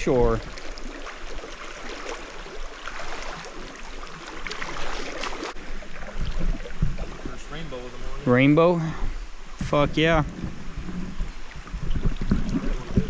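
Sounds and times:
sharp splashes: 0.0 - 7.4
legs sloshing through water: 0.0 - 8.2
flowing stream water: 0.0 - 13.0.

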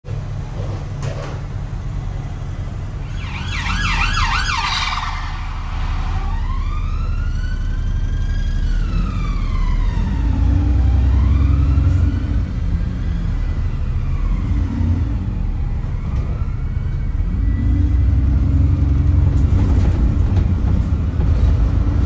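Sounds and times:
bus engine rumble: 0.1 - 22.0
emergency siren yelp and wail: 3.0 - 19.1.

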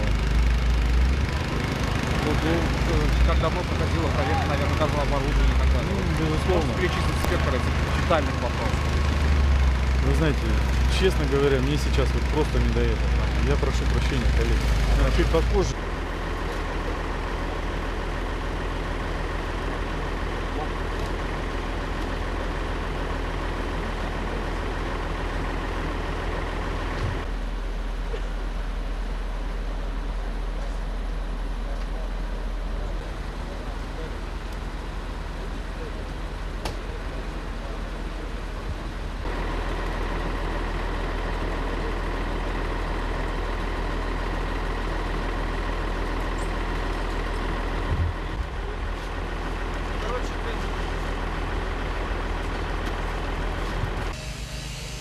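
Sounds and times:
heavy vehicle engines idling: 0.0 - 55.0
thin steady whine: 53.7 - 55.0.

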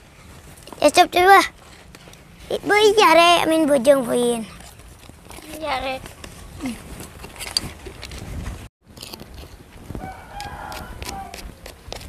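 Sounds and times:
child's voice: 0.8 - 1.5, 2.5 - 4.6, 5.4 - 6.0
rooster crowing: 10.0 - 11.4.

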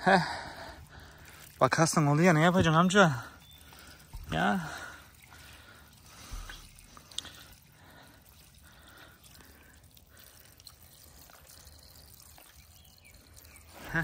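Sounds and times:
water trickling onto soil: 0.0 - 14.0
small ticks: 6.1 - 7.5.

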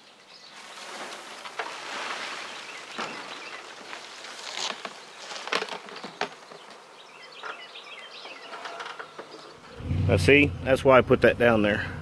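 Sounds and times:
rustling: 0.5 - 6.9.

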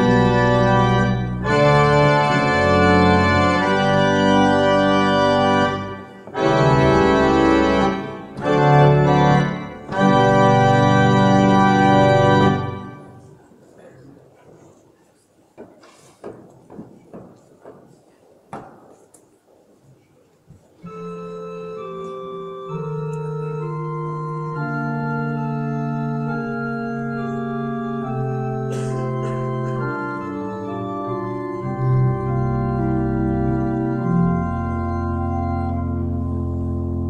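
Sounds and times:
church organ playing chords: 0.0 - 13.3, 20.8 - 37.0
knock: 15.6 - 17.9, 18.5 - 19.0.

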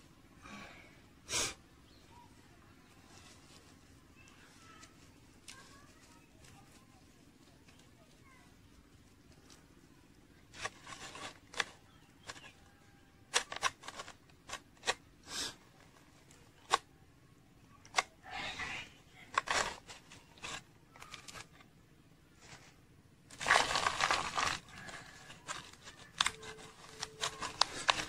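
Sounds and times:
soil scraping and rustling: 10.4 - 15.0, 18.0 - 21.7, 22.4 - 28.0.

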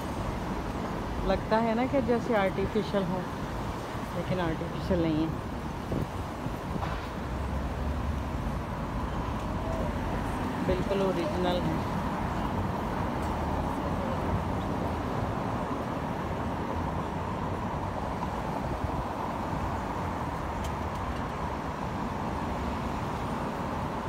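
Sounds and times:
cars passing on street: 0.0 - 24.0.

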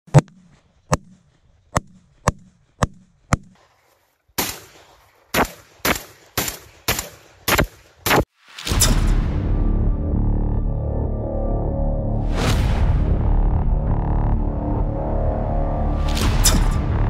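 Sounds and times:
gunshots: 4.4 - 9.2.

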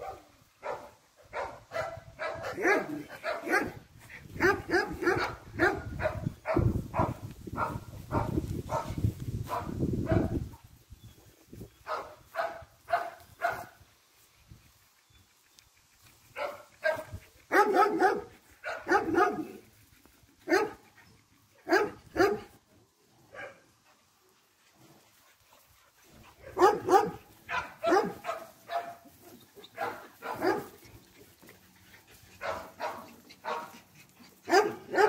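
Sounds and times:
dogs barking: 0.0 - 3.8, 4.4 - 8.9, 9.5 - 10.4, 11.8 - 13.7, 16.4 - 19.6, 20.4 - 20.8, 21.6 - 22.5, 26.4 - 30.8, 32.4 - 35.0.

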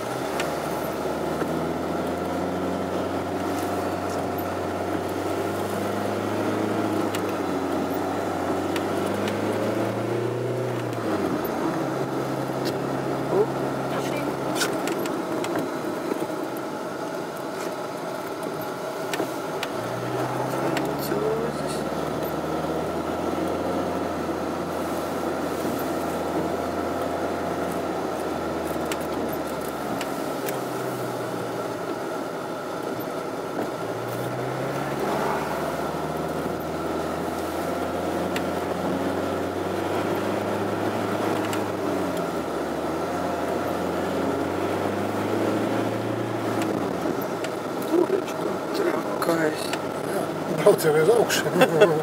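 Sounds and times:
car engine from inside cabin: 0.0 - 52.0.

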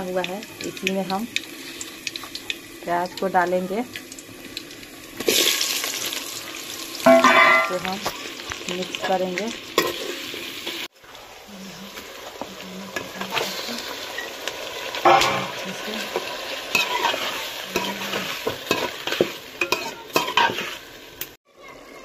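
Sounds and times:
food sizzling in hot oil: 0.0 - 21.4
metal spoon scraping a pot: 16.1 - 20.8.

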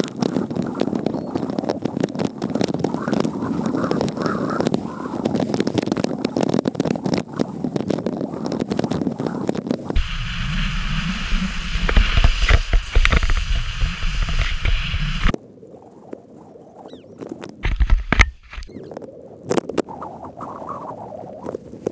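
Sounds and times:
wind rumbling on microphone: 0.0 - 21.9
snowboard scraping over snow: 9.9 - 15.4.

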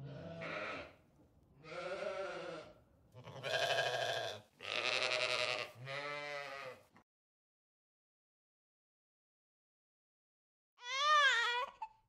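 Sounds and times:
sheep bleating: 0.0 - 1.0, 1.6 - 6.9.

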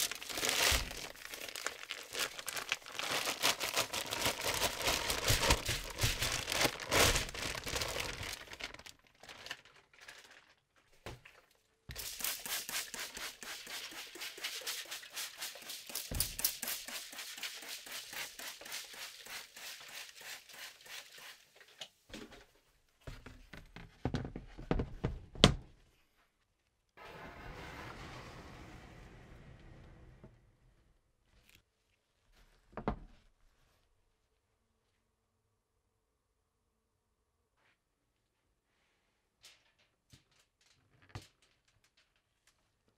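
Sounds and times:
plastic bag crinkling: 0.0 - 10.9.

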